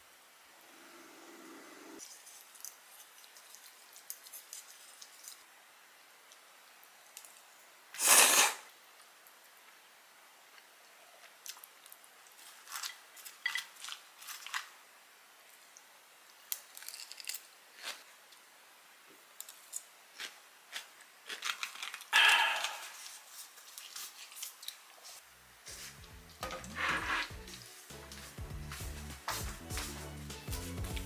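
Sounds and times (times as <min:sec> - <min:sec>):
fork scraping on ceramic plate: 0:26.5 - 0:27.3.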